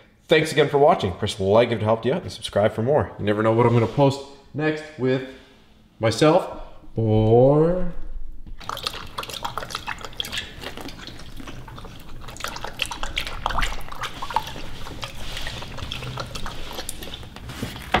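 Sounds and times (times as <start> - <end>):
puppy lapping water: 8.5 - 18.0.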